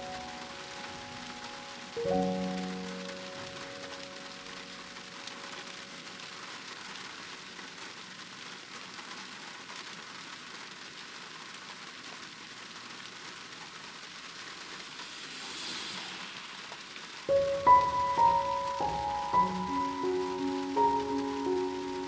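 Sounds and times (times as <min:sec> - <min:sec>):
heavy rain falling: 0:00.0 - 0:22.0.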